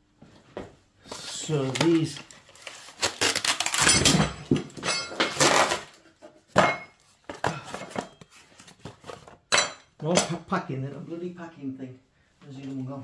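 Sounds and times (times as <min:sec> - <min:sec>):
packaging rustling: 0:01.1 - 0:04.6.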